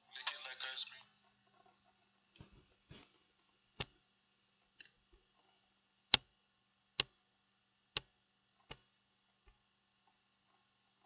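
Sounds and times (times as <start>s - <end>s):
computer mouse clicking: 1.1s - 6.3s, 7.0s - 7.2s, 7.9s - 10.2s.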